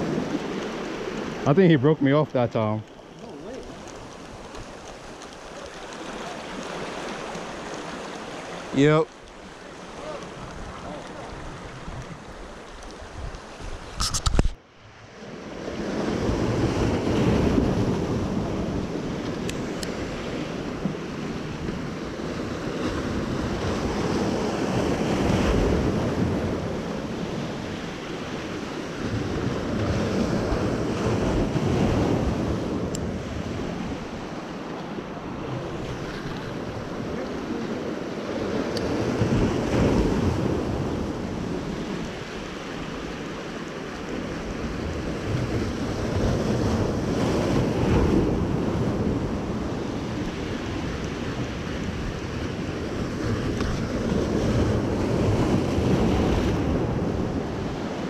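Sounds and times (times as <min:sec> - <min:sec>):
surf breaking over boulders: 0:00.0 - 0:14.6
wind buffeting microphone: 0:02.6 - 0:14.6, 0:15.3 - 0:58.0.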